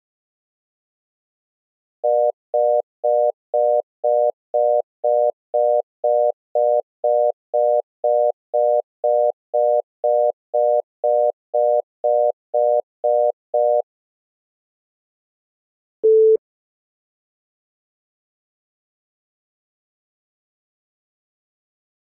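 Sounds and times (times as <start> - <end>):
short telephone beeps: 16.0 - 16.4.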